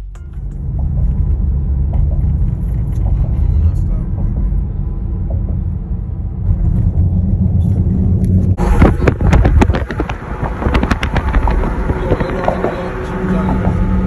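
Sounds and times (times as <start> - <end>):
car road rumble: 0.0 - 14.0
loud crackling and popping: 8.9 - 12.8.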